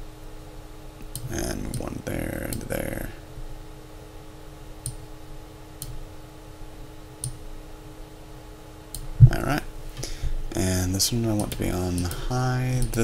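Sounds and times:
faint steady hum: 0.0s - 13.0s
computer mouse clicking: 7.2s - 7.4s, 11.3s - 13.0s.

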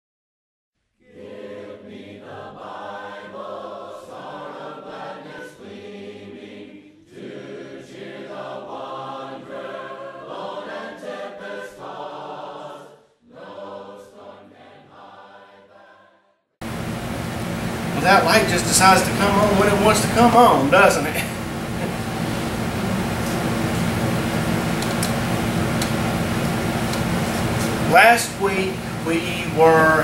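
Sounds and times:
congregation singing a hymn: 1.0s - 16.2s, 18.0s - 24.4s, 25.2s - 30.0s.

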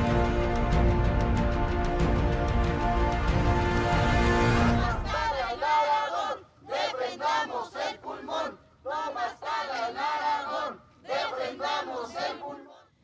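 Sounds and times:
crowd chanting: 4.4s - 13.0s.

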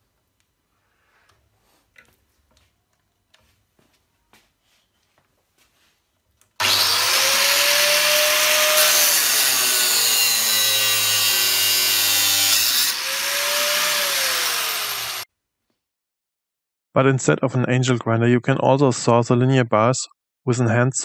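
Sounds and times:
angle grinder cutting steel rod: 6.6s - 15.2s.

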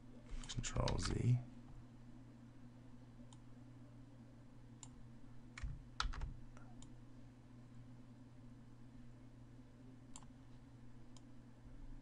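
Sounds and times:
faint low hum: 0.0s - 12.0s
keyboard and mouse clicks: 0.4s - 1.2s, 5.6s - 6.9s.

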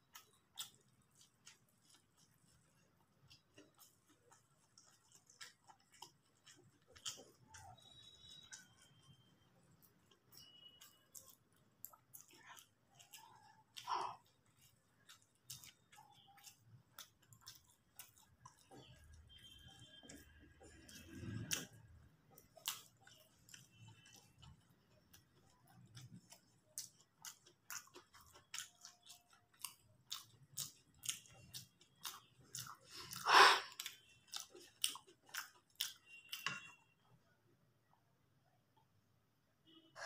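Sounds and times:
chewing with mouth clicks: 0.0s - 37.0s.

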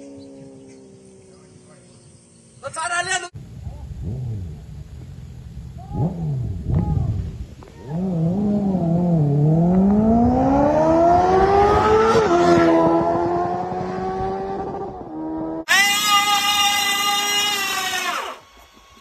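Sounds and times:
motorcycles accelerating: 0.0s - 2.8s, 3.6s - 6.9s, 7.8s - 15.7s
electric motorcycle motor whine: 13.6s - 19.0s.

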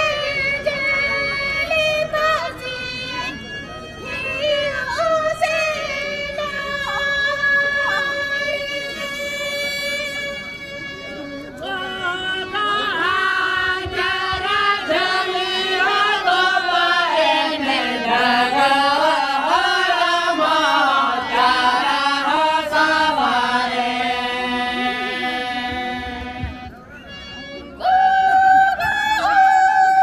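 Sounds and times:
harmonium: 0.0s - 30.0s
men singing in unison: 13.1s - 26.4s.

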